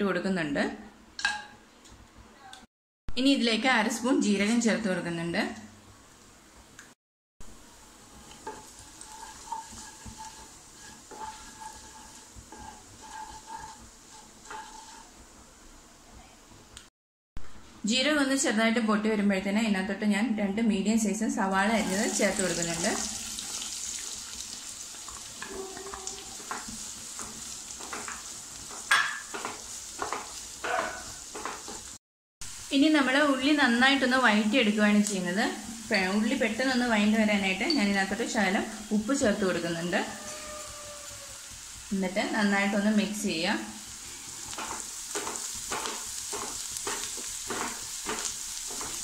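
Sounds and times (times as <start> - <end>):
onions sizzling in oil: 7.4 - 15.8, 21.5 - 49.0
spatula scraping pan: 7.8 - 15.3, 21.7 - 24.3, 24.9 - 31.9, 44.0 - 49.0.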